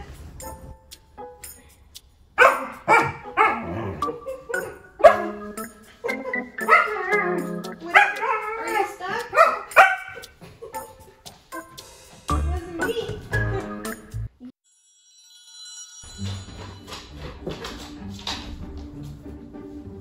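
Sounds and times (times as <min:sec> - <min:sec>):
puppy barking and whining: 0:02.4 - 0:10.3.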